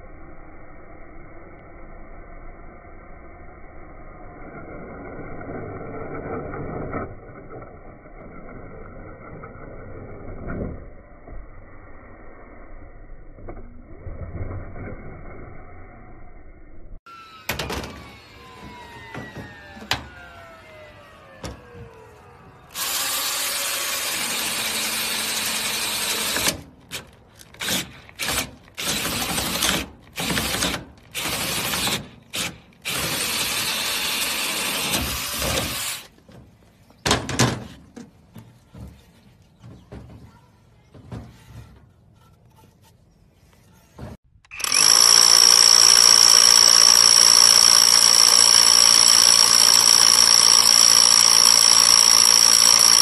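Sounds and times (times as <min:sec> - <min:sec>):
drill whining into wood: 0:17.1 - 0:26.6, 0:27.6 - 0:36.1, 0:44.5 - 0:53.0
cordless drill boring into wood: 0:22.6 - 0:26.6, 0:27.6 - 0:36.1, 0:44.5 - 0:53.0.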